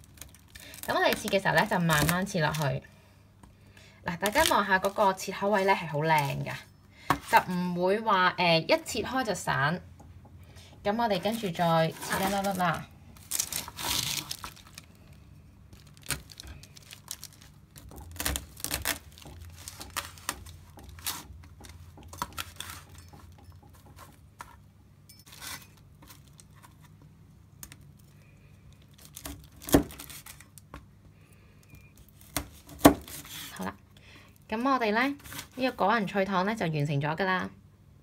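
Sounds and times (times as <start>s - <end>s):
paper rustling: 11.3s - 21.3s.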